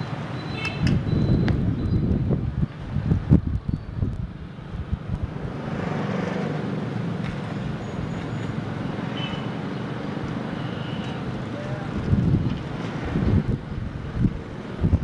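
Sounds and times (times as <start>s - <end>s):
wind buffeting microphone: 0.7s - 8.9s, 11.3s - 15.0s.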